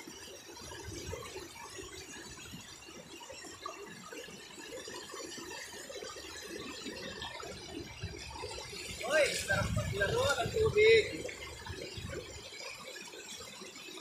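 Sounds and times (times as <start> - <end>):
river water rushing over rocks: 5.2 - 14.0.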